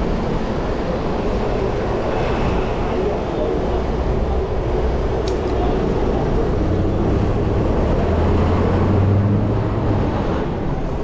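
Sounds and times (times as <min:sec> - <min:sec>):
road traffic: 0:00.0 - 0:11.0
low vehicle engine hum: 0:03.0 - 0:11.0.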